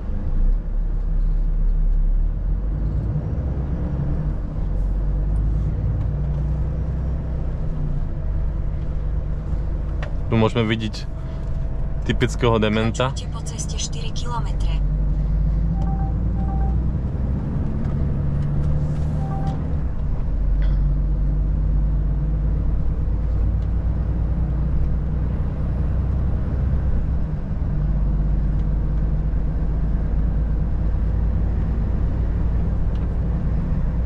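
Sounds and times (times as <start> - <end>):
diesel truck engine drone: 0.0 - 34.0
road noise: 0.0 - 34.0
short beeps: 15.7 - 16.8.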